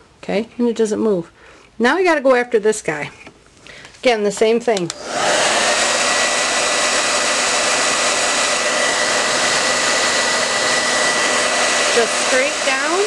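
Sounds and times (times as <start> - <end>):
hair dryer running: 4.8 - 13.0.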